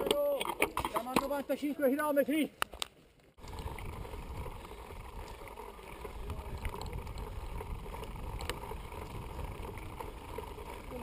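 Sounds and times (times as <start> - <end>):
bike clicks and rattles: 0.0 - 1.8, 2.6 - 11.0
tyres rumbling on dirt: 3.4 - 11.0
wind on microphone: 3.4 - 11.0.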